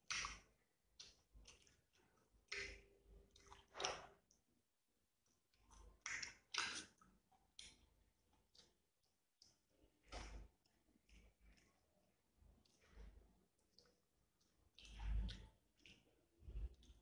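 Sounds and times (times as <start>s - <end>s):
wet chewing: 0.0s - 4.4s, 5.5s - 17.0s
mouth clicks and lip smacks: 5.7s - 7.8s, 12.6s - 17.0s.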